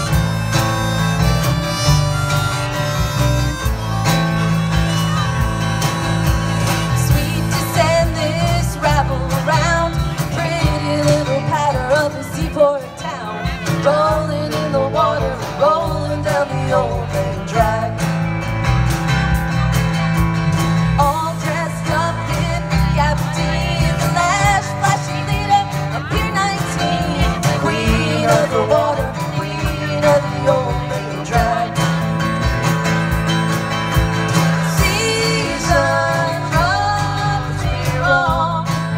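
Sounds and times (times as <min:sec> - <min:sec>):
live rock band playing: 0:00.0 - 0:38.9
woman singing: 0:06.9 - 0:18.1, 0:21.0 - 0:32.1, 0:34.6 - 0:38.9.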